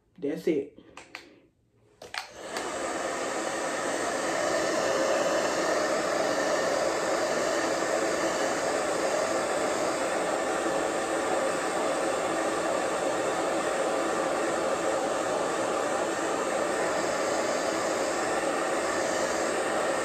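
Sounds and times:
hair dryer switch click: 2.0s - 2.8s
hair dryer blowing: 2.0s - 20.0s.

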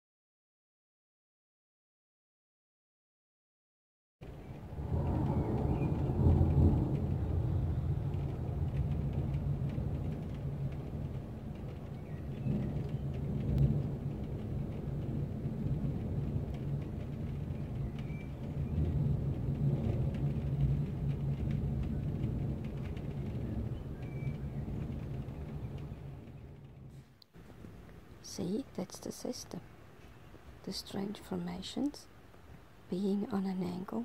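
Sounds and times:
rain falling: 4.2s - 34.0s
thunder rumbling: 4.2s - 34.0s.

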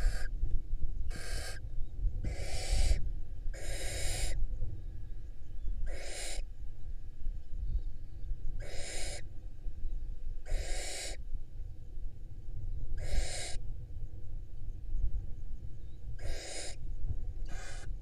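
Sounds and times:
barn owls hissing: 0.0s - 0.3s, 1.1s - 1.6s, 2.3s - 4.4s, 5.9s - 6.4s, 8.6s - 9.3s, 10.5s - 11.2s, 13.0s - 13.6s, 16.2s - 16.8s, 17.5s - 17.9s.

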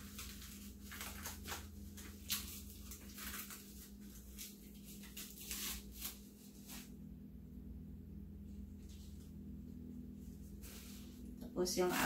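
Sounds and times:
gloved hands rustling: 0.0s - 7.0s
steady low hum: 0.0s - 12.0s.

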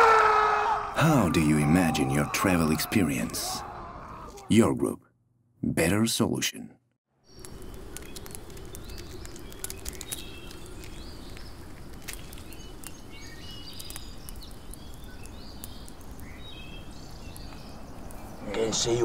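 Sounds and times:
small birds chirping: 7.2s - 19.0s.

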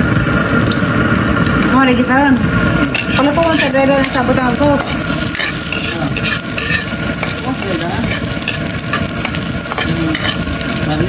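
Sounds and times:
shallots and garlic sizzling: 0.0s - 11.0s
metal spatula scraping a wok: 2.6s - 11.0s.

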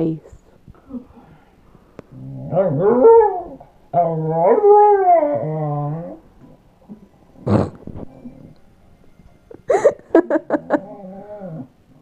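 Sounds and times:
dog howling: 2.2s - 6.3s, 10.7s - 11.7s.

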